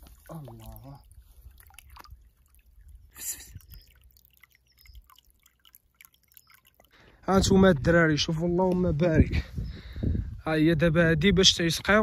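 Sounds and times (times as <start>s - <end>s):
water dripping and trickling: 0.0s - 7.8s.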